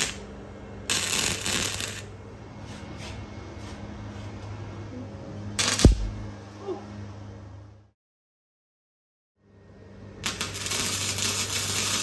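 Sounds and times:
welder crackling: 0:00.0 - 0:02.2, 0:05.6 - 0:06.3, 0:10.2 - 0:12.0.

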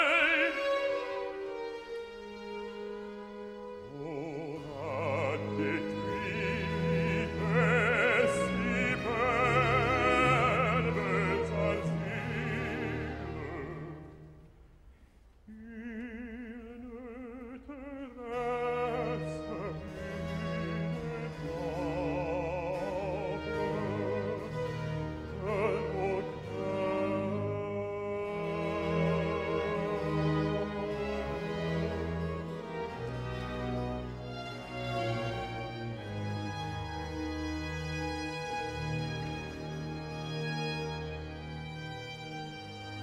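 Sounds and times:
bass-baritone singing: 0:00.0 - 0:01.0, 0:03.8 - 0:14.2, 0:15.5 - 0:24.6, 0:25.2 - 0:31.0
orchestra playing: 0:00.0 - 0:14.6, 0:17.4 - 0:43.0.

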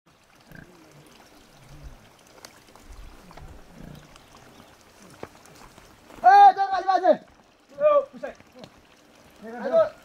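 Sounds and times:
pig grunting: 0:00.4 - 0:01.0.

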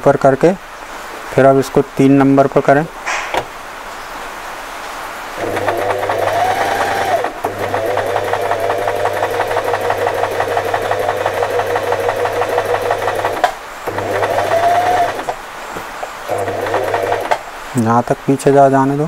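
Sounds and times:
sewing machine stitching: 0:05.4 - 0:15.4, 0:16.2 - 0:17.5.

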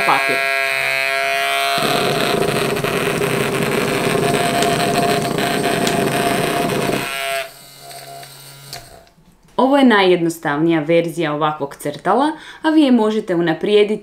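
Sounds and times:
small motor buzzing: 0:00.0 - 0:09.0
marker legs rattling on paper: 0:01.8 - 0:07.1.

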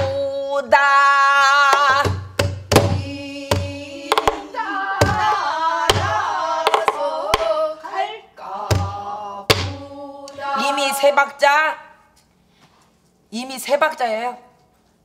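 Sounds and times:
woman singing with vibrato: 0:00.0 - 0:02.2, 0:02.8 - 0:11.6
barrel drum strokes: 0:01.8 - 0:07.6.

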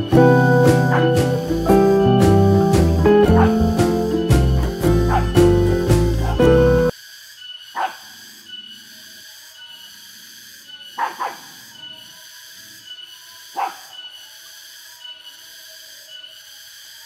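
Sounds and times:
background music: 0:00.0 - 0:06.9
dog barking: 0:00.9 - 0:01.2, 0:03.2 - 0:03.8, 0:05.0 - 0:05.5, 0:06.2 - 0:06.6, 0:07.8 - 0:08.1, 0:11.0 - 0:11.6, 0:13.5 - 0:14.0.

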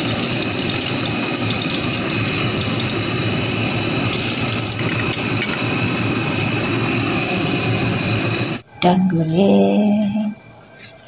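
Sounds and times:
oil sizzling while deep-frying: 0:00.0 - 0:08.6.

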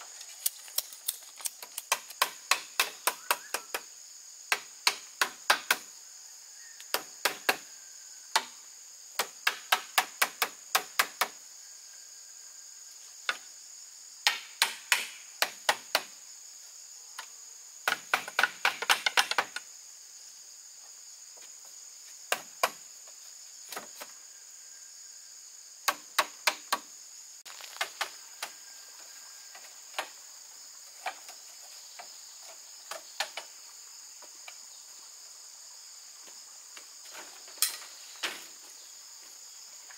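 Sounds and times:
hand tool striking bamboo: 0:01.4 - 0:03.8, 0:14.2 - 0:16.1, 0:17.9 - 0:19.6.

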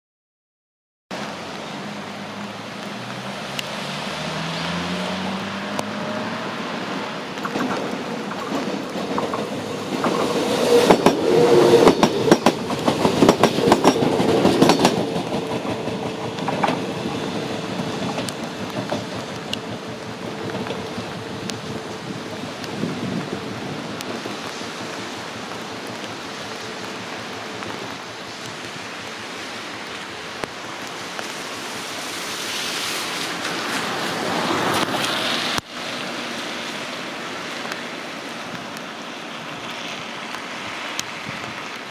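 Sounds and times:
train hum and rumble: 0:01.2 - 0:41.9
train wheels clacking over rail joints: 0:07.4 - 0:21.8.

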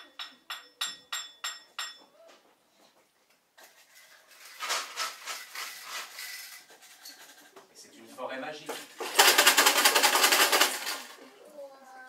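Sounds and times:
ringing metallic taps: 0:00.0 - 0:02.1
objects rattling and scraping: 0:03.6 - 0:11.4.

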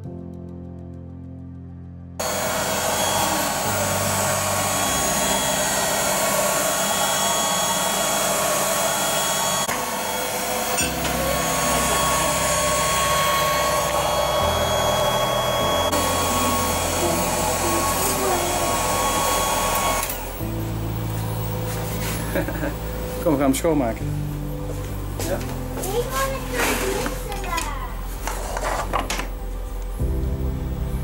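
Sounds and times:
whining tones: 0:02.2 - 0:23.2
laser engraver fan hissing: 0:02.2 - 0:23.6.

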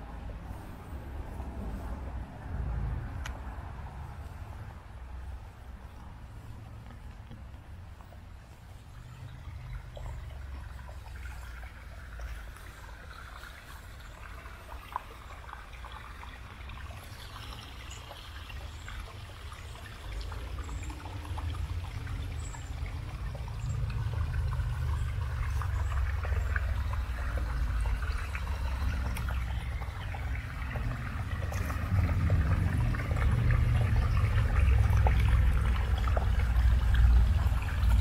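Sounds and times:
stream trickling over rocks: 0:00.0 - 0:38.0.

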